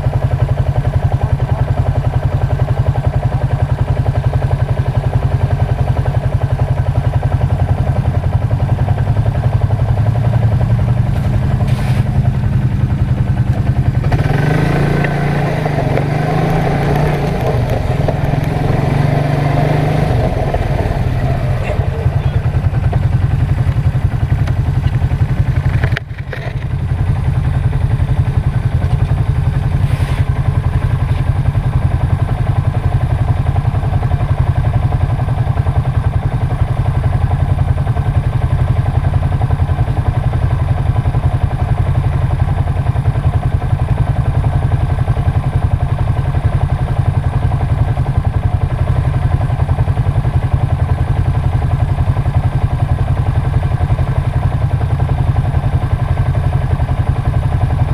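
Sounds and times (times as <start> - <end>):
atv engine running: 0.0 - 57.9.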